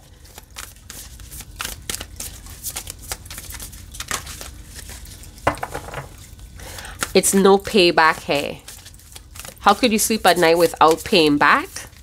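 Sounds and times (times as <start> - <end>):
cards snapping and rustling: 0.2 - 6.2, 8.6 - 9.9.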